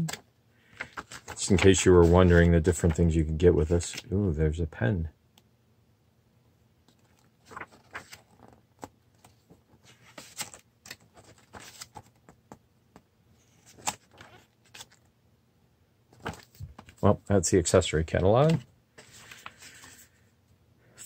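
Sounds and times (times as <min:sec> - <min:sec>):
paper pages flipping: 0:00.0 - 0:03.0, 0:06.9 - 0:12.4, 0:13.4 - 0:15.1, 0:16.1 - 0:17.1, 0:18.1 - 0:20.2.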